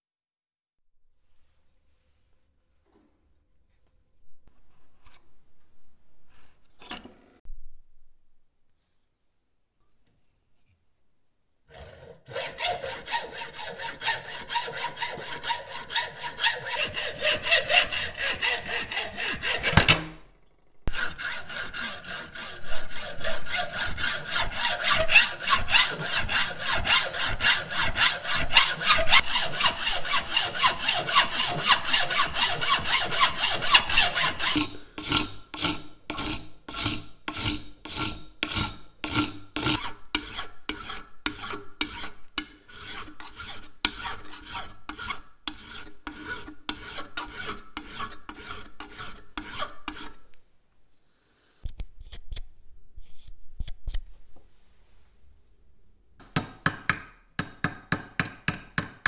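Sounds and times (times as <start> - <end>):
file rasping on metal: 11.7 - 20.1, 20.9 - 50.3
hacksaw cutting metal: 11.7 - 20.2, 20.9 - 50.2.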